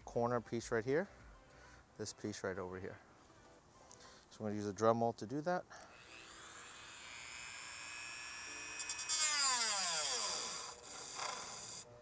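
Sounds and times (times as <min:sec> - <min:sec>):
rotary tool whining: 0:05.8 - 0:11.9.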